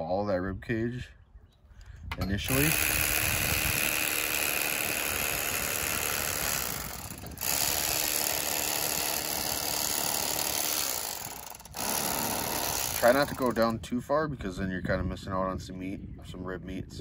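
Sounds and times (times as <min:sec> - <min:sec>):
electric knife buzzing: 0:02.5 - 0:13.6.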